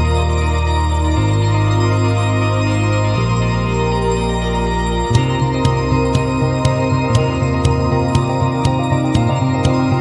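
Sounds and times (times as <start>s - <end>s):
sustained music chords: 0.0s - 10.0s
light beat: 5.1s - 10.0s.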